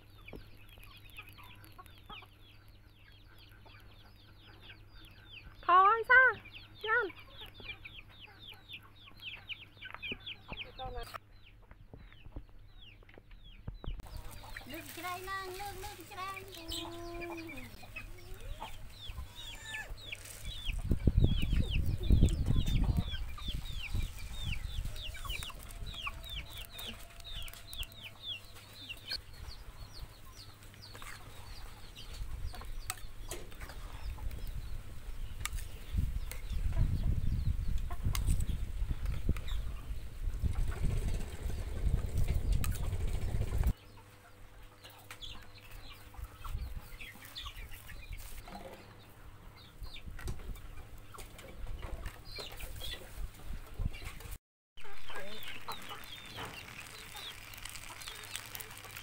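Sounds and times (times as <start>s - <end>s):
chickens clucking: 0.0s - 59.0s
rice poured into metal wok: 55.8s - 59.0s.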